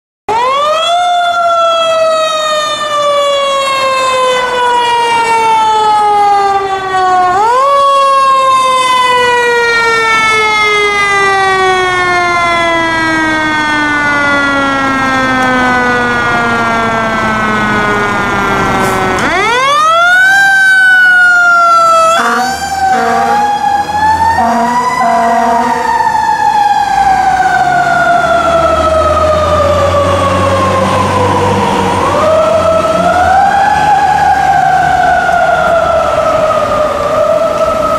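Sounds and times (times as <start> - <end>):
air horn blasts: 22.1 - 23.6, 24.4 - 25.9.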